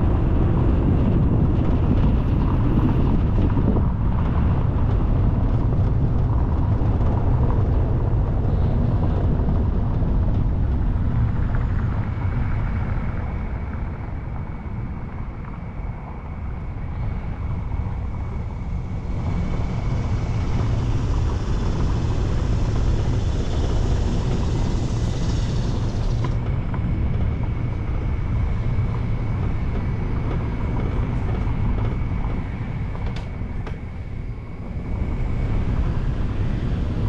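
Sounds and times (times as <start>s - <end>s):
wind on microphone: 0.0s - 37.0s
high hiss: 19.4s - 26.4s.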